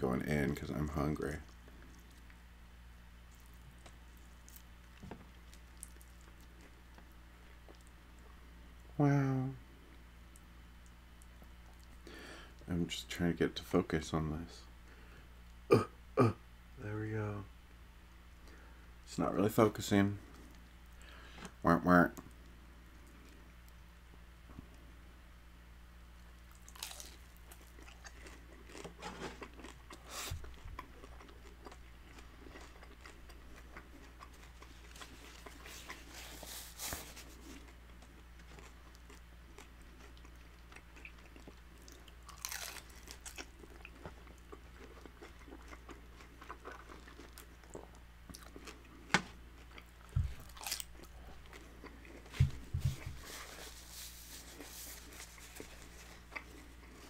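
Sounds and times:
chewing and crunching crispy tacos: 0.2 - 9.0, 9.7 - 12.7, 26.2 - 57.0.

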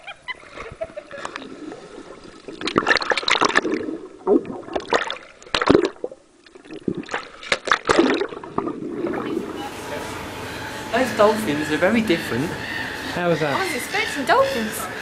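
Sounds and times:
water splashing and gurgling: 0.0 - 9.7.

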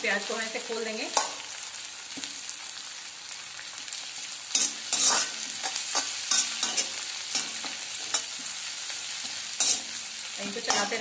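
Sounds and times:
onions sizzling in hot oil: 0.0 - 11.0
metal spatula scraping pan: 4.5 - 8.6, 9.2 - 11.0.

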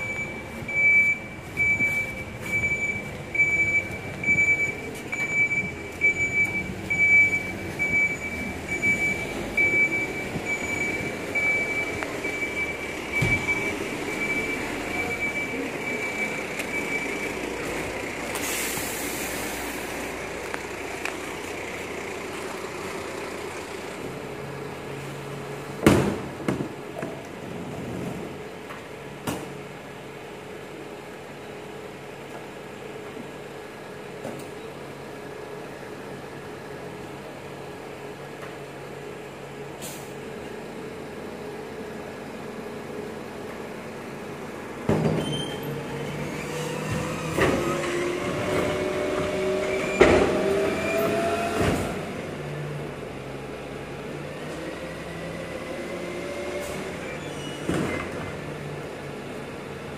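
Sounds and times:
reversing alarm beeping: 0.0 - 17.9
diesel engine running: 0.0 - 59.9.

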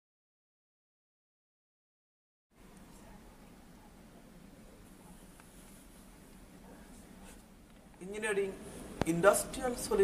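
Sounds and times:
faint low hum: 2.6 - 10.0.

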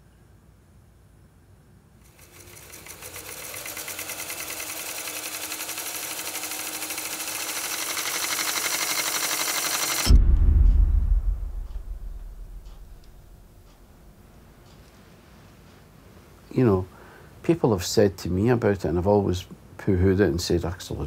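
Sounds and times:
motorised film reader whirring: 2.1 - 10.1
heavy low thud: 10.1 - 14.1.

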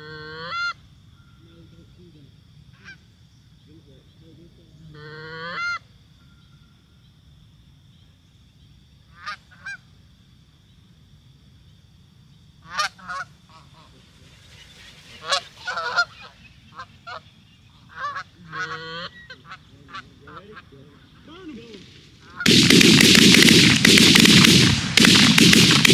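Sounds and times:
geese honking: 0.0 - 2.1, 2.7 - 3.2, 4.4 - 6.8, 9.1 - 10.0, 12.6 - 25.9.

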